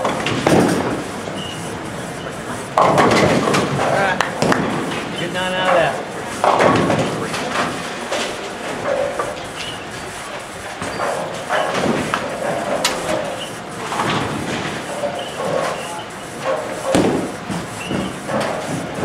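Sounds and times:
bowling balls rumbling down lanes: 0.0s - 19.0s
bowling pins clattering: 0.0s - 19.0s
faint voices: 5.0s - 11.6s.

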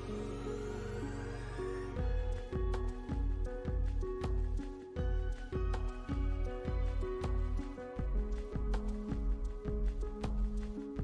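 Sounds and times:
music with steady beat and bass: 0.0s - 11.0s.

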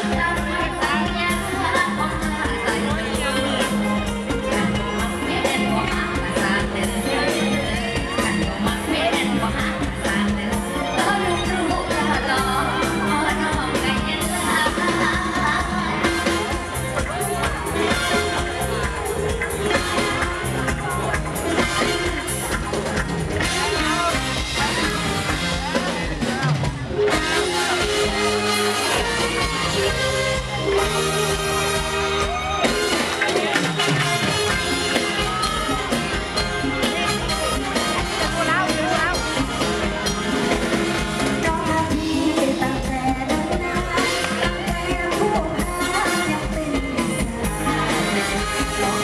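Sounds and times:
woman singing into a microphone: 0.0s - 3.7s, 4.4s - 16.2s, 41.4s - 49.0s
amplified band with beat and bass: 0.0s - 49.0s.

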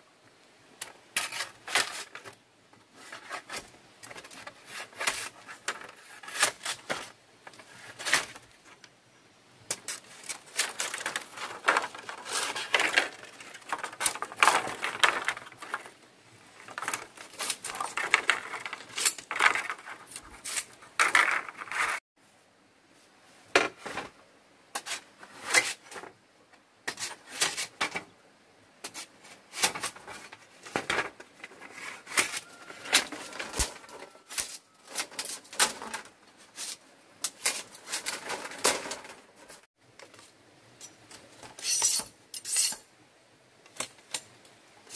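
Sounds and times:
bamboo cracking and clattering: 0.8s - 8.9s, 9.7s - 22.0s, 28.8s - 42.9s, 43.6s - 44.9s
bamboo strips clacking: 9.7s - 22.0s, 28.8s - 40.2s.

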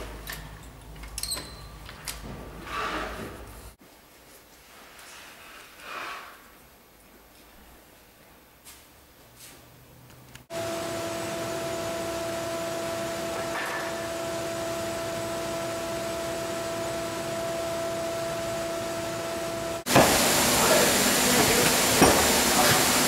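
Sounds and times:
workshop machine humming: 10.5s - 23.0s.

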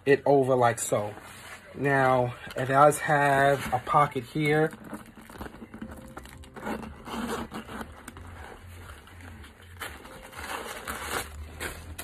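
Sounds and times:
canvas bag rustling: 1.0s - 12.0s
zipper being pulled open: 5.0s - 12.0s.

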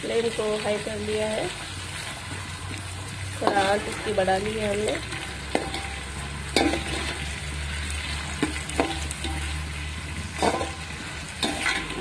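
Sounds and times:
onions sizzling in hot oil: 0.0s - 12.0s
metal spoon scraping a pot: 5.0s - 7.4s, 8.0s - 12.0s.

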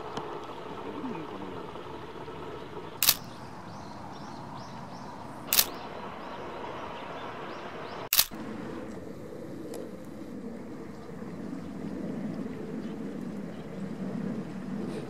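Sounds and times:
camera shutter bursts: 3.0s - 3.3s, 5.5s - 5.8s, 8.1s - 8.4s.

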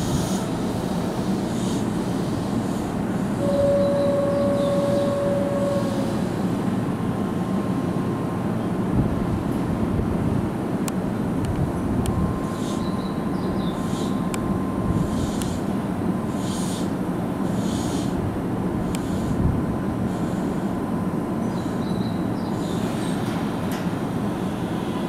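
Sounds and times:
train wheels rumbling on rails: 0.0s - 25.0s
steady tone: 3.3s - 6.9s.

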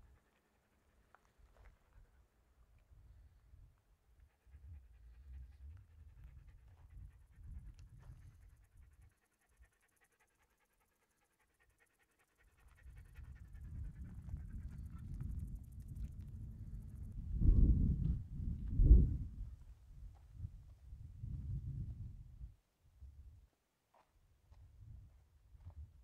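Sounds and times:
faint panting breaths: 0.0s - 2.4s, 4.0s - 15.9s
wind buffeting microphone: 4.5s - 9.1s, 12.6s - 23.4s, 24.5s - 26.0s.

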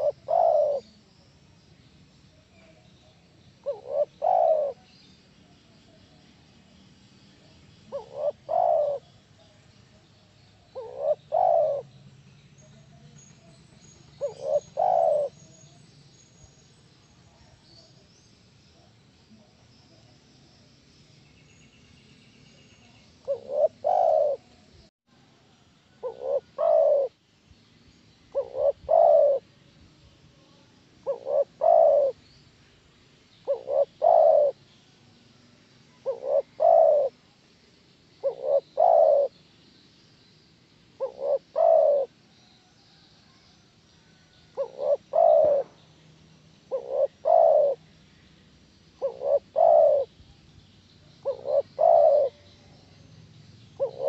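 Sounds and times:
dove cooing: 0.0s - 1.0s, 3.6s - 4.9s, 7.8s - 9.1s, 10.7s - 11.9s, 14.1s - 15.4s, 23.2s - 24.5s, 26.0s - 27.1s, 28.3s - 29.4s, 31.0s - 32.2s, 33.4s - 34.6s, 35.9s - 37.2s, 38.2s - 39.4s, 41.0s - 42.2s, 44.5s - 45.8s, 46.7s - 47.8s, 49.0s - 50.2s, 51.2s - 52.8s, 53.8s - 54.0s.

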